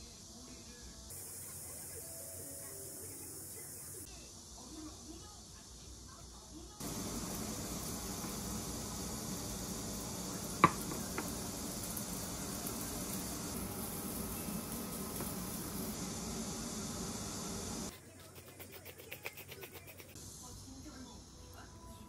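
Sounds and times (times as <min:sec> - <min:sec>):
food sizzling in a frying pan: 0:01.1 - 0:17.9.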